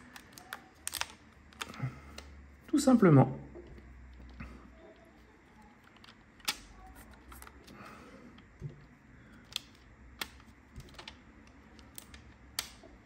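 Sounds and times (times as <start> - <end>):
rubber bands snapping: 11.9 - 12.9.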